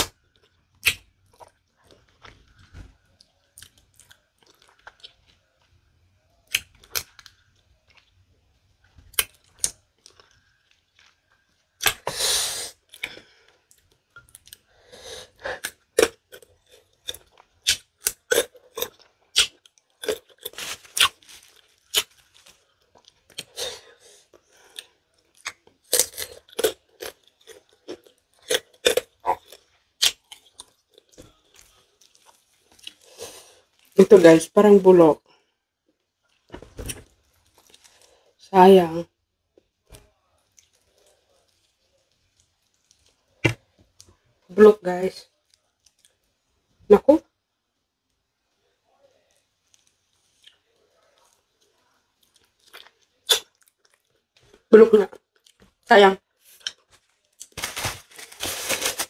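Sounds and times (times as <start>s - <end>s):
person chewing and crunching: 0.0s - 5.8s, 6.4s - 12.1s, 12.8s - 14.7s, 15.4s - 34.0s, 36.3s - 38.2s, 39.9s - 44.1s, 49.3s - 54.6s, 56.4s - 59.0s.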